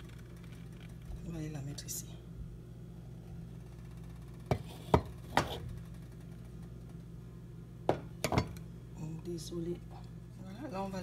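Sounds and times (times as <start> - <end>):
steady low hum: 0.0 - 11.0
dishes knocking on countertop: 4.5 - 5.6, 7.9 - 8.6.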